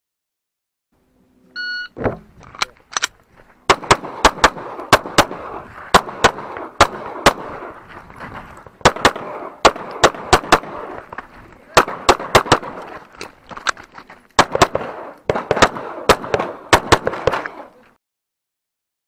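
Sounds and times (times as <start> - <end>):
shot timer beep: 1.6 - 2.0
pistol firing rapid shots: 3.7 - 7.8, 8.8 - 11.0, 11.7 - 12.9, 14.4 - 17.7.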